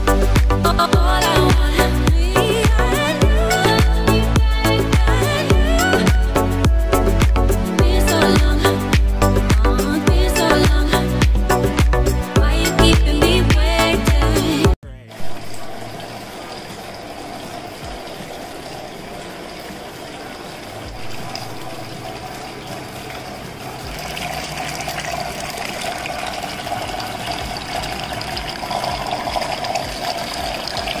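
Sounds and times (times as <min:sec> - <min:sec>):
fountain water splashing: 0:15.4 - 0:31.0.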